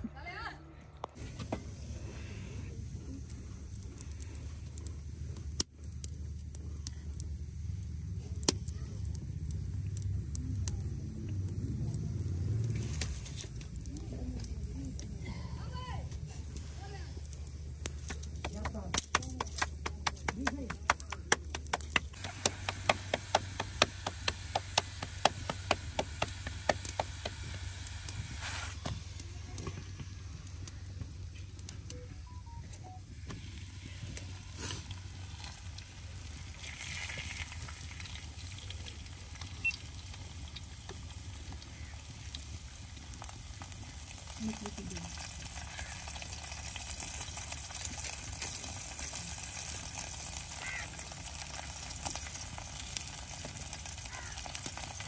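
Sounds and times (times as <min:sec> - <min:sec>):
food sizzling in a pan: 0:22.2 - 0:28.9, 0:33.3 - 0:55.0.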